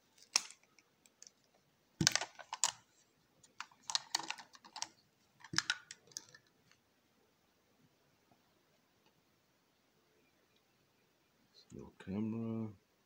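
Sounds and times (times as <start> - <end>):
plastic housing clicking and rattling: 0.2 - 2.9, 3.5 - 6.8.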